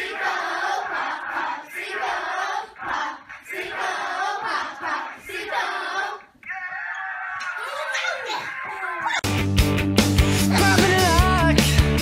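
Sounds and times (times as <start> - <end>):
children chanting and shouting: 0.0 - 9.3.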